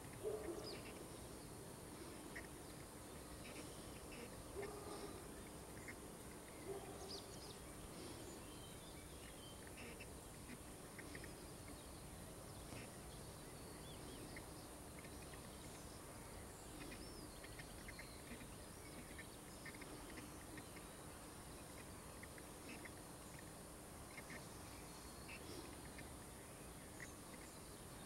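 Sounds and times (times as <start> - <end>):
bird chirps and calls: 0.0 - 1.3, 1.9 - 23.5
steady hiss: 0.0 - 28.0.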